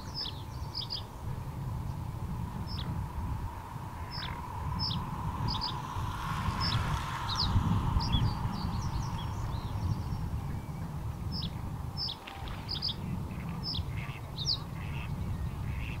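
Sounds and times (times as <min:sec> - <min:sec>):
bird chirping: 0:00.0 - 0:01.1
steady low rumble: 0:00.0 - 0:16.0.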